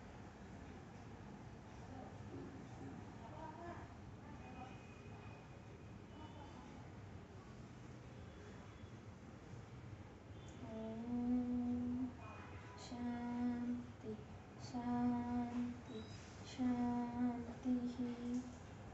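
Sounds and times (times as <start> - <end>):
girl chanting: 10.6 - 12.2, 12.8 - 18.5.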